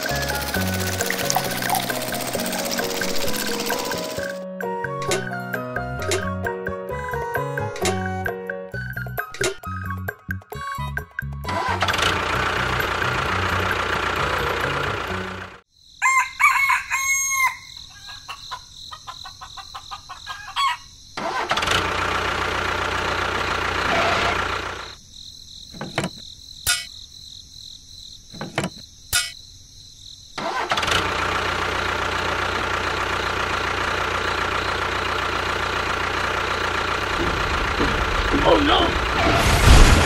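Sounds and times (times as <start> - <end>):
small electric motor running: 0.0 - 4.4.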